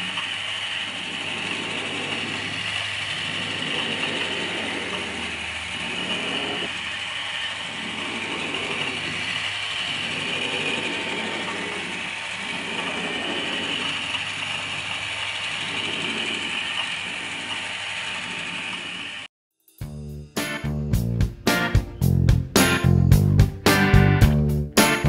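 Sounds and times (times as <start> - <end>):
drawing machine mechanical whir: 0.0 - 19.3.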